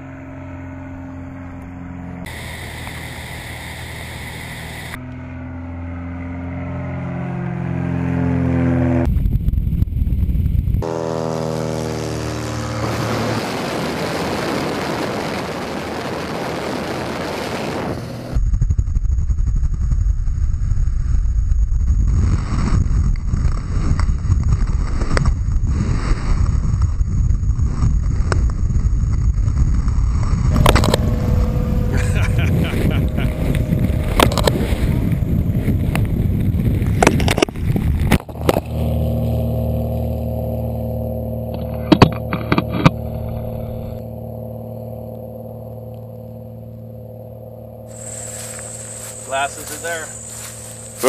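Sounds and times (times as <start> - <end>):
light airplane engine running: 0.0 - 51.0
heavy wind buffeting a camera: 9.0 - 10.9, 12.7 - 44.2
rush of wind: 9.0 - 10.9, 12.2 - 38.8.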